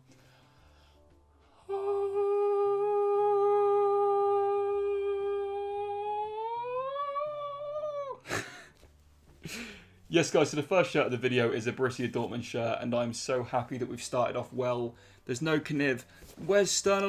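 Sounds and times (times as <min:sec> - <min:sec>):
faint background music: 0:00.0 - 0:17.0
man singing a long note: 0:01.7 - 0:08.1.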